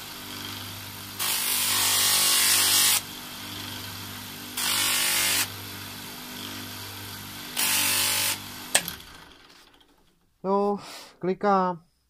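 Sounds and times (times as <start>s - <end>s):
bench motor humming: 0.0s - 9.3s.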